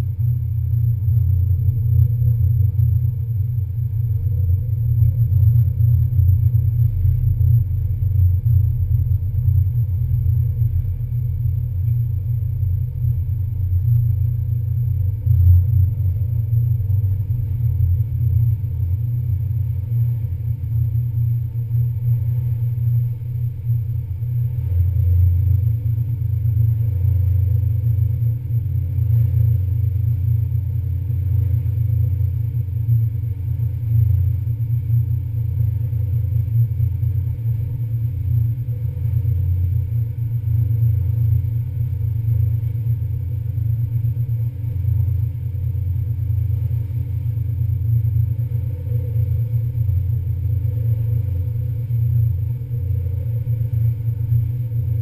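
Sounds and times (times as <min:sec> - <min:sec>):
faint steady tones: 0:00.0 - 0:55.0.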